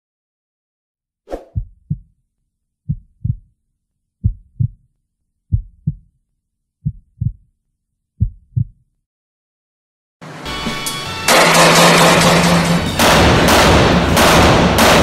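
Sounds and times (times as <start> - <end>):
heartbeat thumps: 1.5 - 2.2, 2.9 - 3.5, 4.2 - 4.9, 5.5 - 6.1, 6.8 - 7.5, 8.2 - 8.8.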